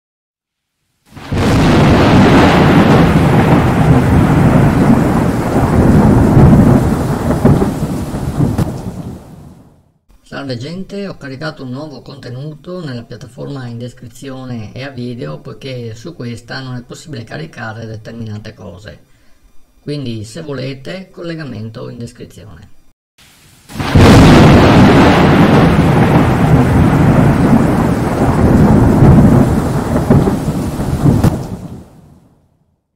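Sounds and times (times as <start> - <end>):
rain-like hiss: 0.5 - 32.4
sharp crackles: 1.1 - 9.6, 23.7 - 32.1
thunder rumbling: 1.2 - 9.8, 23.7 - 32.4.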